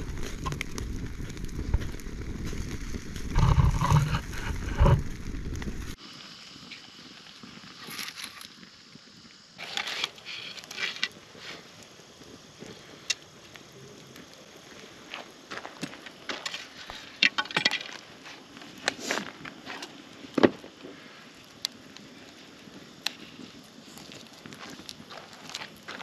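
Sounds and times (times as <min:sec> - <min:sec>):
campfire crackling and popping: 0:00.0 - 0:26.0
fish scraping on metal grill: 0:03.2 - 0:05.3.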